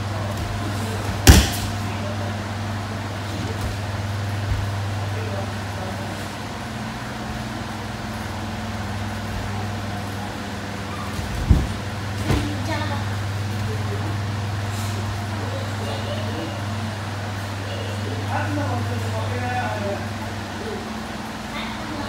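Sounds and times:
steady low hum: 0.0s - 22.0s
body slapping on mats: 0.3s - 1.8s, 11.2s - 12.6s.

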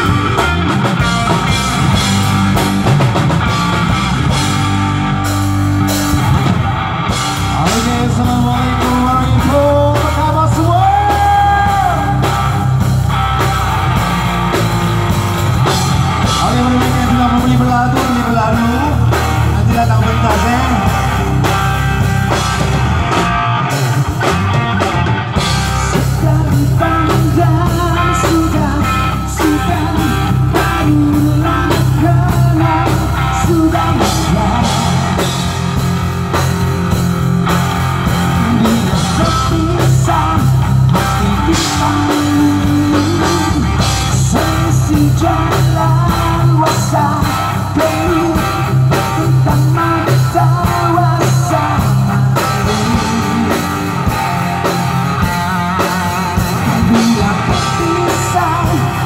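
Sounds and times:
bass guitar: 0.0s - 59.0s
drum kit: 0.0s - 59.0s
electric guitar: 0.0s - 59.0s
person singing: 7.4s - 13.0s, 16.2s - 21.6s, 25.4s - 36.0s, 38.0s - 59.0s.

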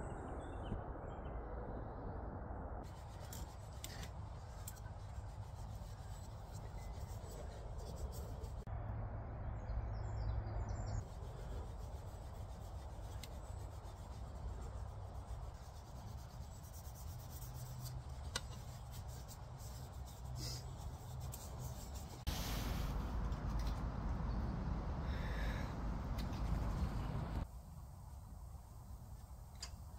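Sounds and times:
outdoor background noise: 0.0s - 29.9s
hands rubbing wooden spoon: 2.8s - 8.7s, 11.0s - 22.3s.

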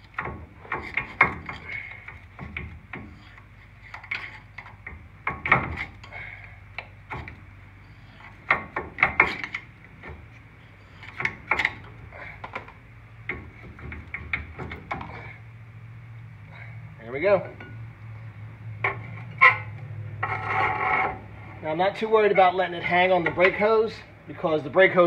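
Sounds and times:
metal clicks and scrapes: 0.0s - 15.3s.

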